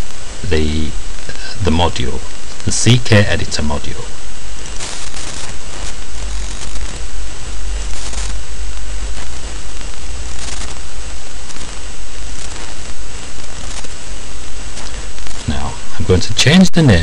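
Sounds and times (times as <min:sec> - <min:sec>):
microphone hiss: 0:00.0 - 0:17.0.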